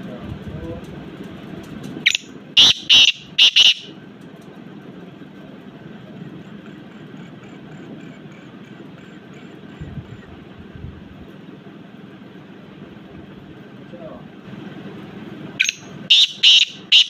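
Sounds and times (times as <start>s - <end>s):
bird calling harsh notes: 2.0s - 4.0s, 15.6s - 17.0s.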